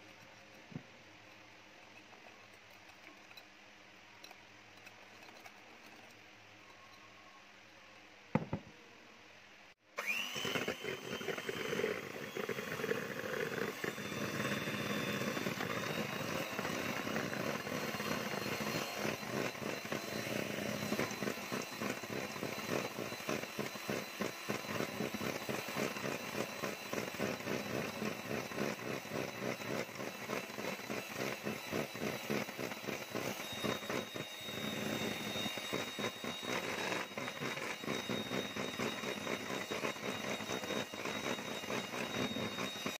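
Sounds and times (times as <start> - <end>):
electric hand mixer running: 10.0 - 42.9.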